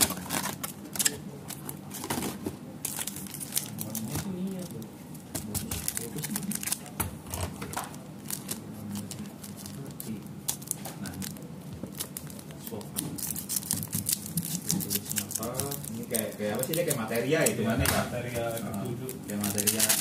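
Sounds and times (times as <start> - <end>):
scissors snipping foil: 0.0 - 1.8, 5.4 - 6.9, 12.0 - 17.7, 18.3 - 20.0
foil crinkling: 0.0 - 4.8, 5.4 - 7.0, 7.6 - 20.0.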